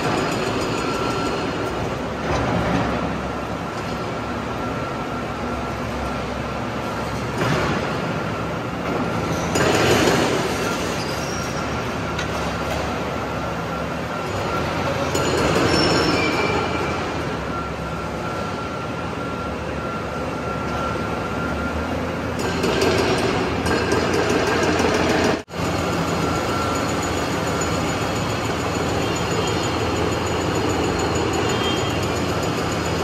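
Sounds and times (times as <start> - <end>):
metallic scraping and squealing: 9.2 - 12.0, 14.8 - 17.2.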